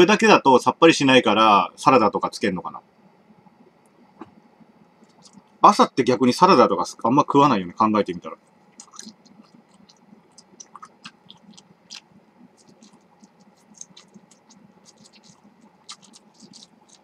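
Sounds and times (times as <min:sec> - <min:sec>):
quiet chewing: 0:04.9 - 0:05.6, 0:08.4 - 0:17.0.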